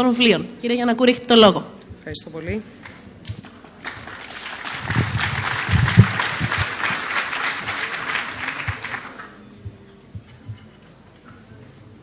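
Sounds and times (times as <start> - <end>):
audience applauding: 3.8 - 9.4.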